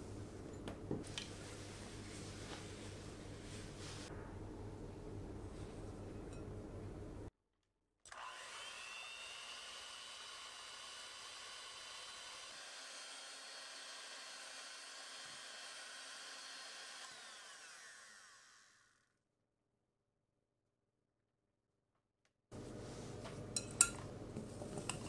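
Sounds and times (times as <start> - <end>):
electric hand mixer whine: 8.1 - 19.1.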